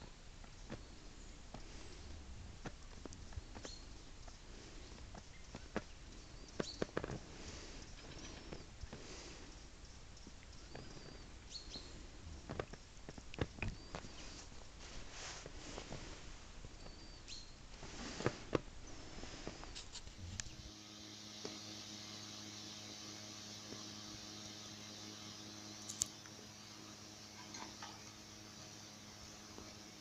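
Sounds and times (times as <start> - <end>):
low electrical hum: 0.0 - 30.0
faint bird chirps: 7.8 - 12.5, 16.7 - 17.6
sharp clicks: 25.8 - 26.4.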